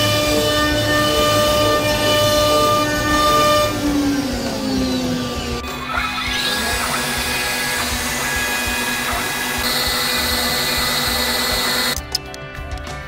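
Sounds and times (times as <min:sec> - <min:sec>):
laser cutter whooshing: 0:00.0 - 0:12.0
high steady whine: 0:06.5 - 0:12.0.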